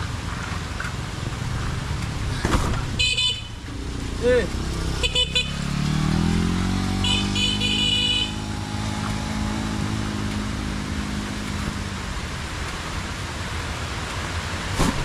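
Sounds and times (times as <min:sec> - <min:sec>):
motor vehicle engine rising in pitch: 0:01.2 - 0:12.2.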